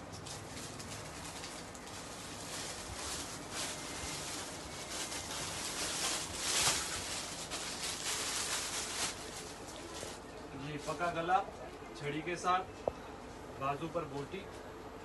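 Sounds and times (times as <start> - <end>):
fabric rustling: 0.4 - 11.1.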